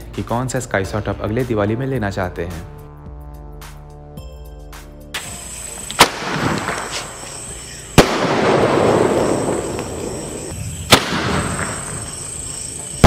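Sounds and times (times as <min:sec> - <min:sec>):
firework bangs: 0:05.2 - 0:13.0
fizzing crackle of sparks: 0:05.2 - 0:13.0.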